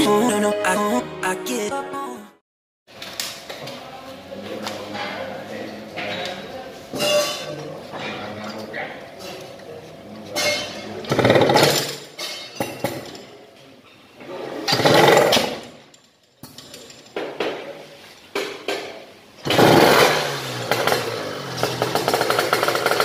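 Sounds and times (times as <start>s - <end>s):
motorcycle engine starting and running: 11.0s - 12.0s, 14.7s - 15.7s, 19.4s - 23.0s.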